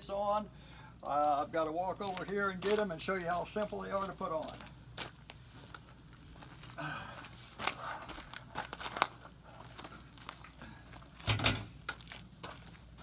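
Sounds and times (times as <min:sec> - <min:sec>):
footsteps crunching on gravel: 0:01.2 - 0:13.0
trunk thumping onto metal rack: 0:11.2 - 0:11.8.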